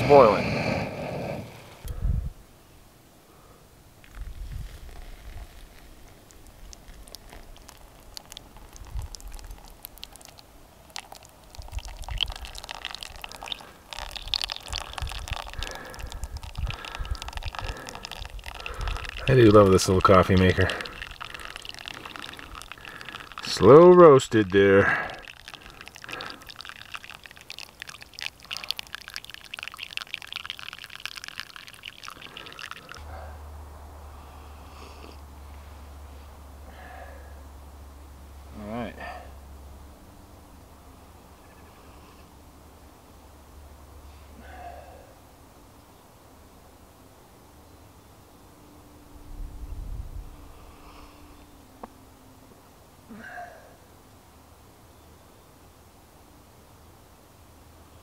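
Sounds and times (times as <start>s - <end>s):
hot water pouring onto coffee grounds: 0.0s - 0.8s, 4.1s - 33.0s
coffee dripping through filter into cup: 4.1s - 33.0s
steady low rumble: 49.1s - 51.4s.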